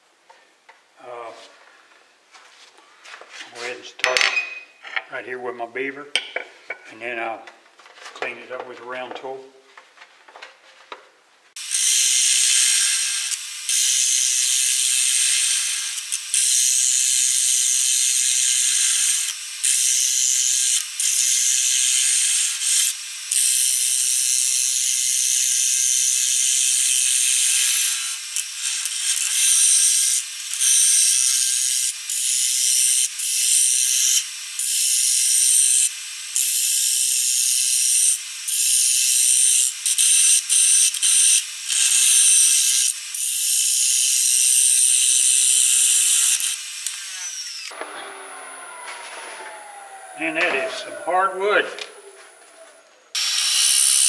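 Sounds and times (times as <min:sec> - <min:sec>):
lathe motor whine: 0:46.4 - 0:52.3.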